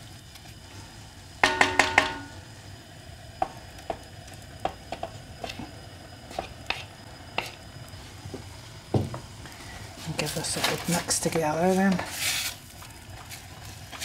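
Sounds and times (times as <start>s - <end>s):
spoon tapping ringing saucepan: 1.4s - 2.4s.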